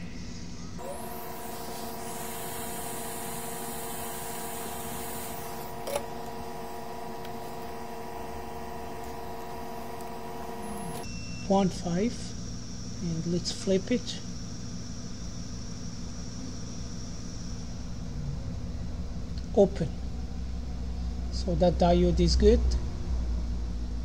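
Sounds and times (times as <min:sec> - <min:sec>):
hot air blower fan hum: 0:00.0 - 0:24.0
click: 0:07.2 - 0:07.4.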